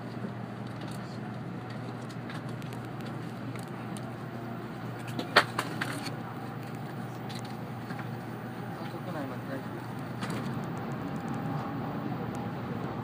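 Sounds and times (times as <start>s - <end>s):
train cabin rumble and hum: 0.0s - 13.0s.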